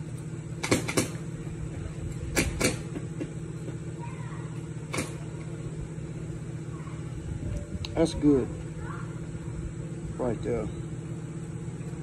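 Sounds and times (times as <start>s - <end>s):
steady low hum: 0.0s - 12.0s
sharp clicks and knocks: 0.6s - 1.2s, 2.3s - 3.8s.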